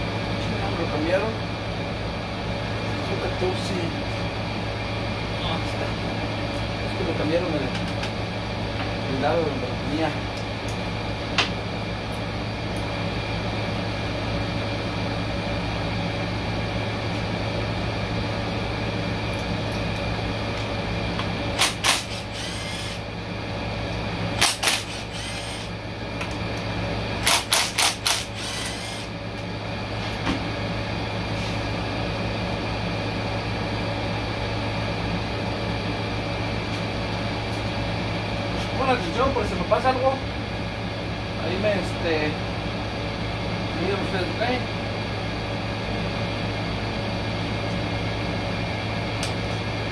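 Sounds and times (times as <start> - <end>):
steady hum: 0.0 - 49.9
cordless ratchet running: 21.6 - 23.0, 24.4 - 25.7, 27.2 - 29.1.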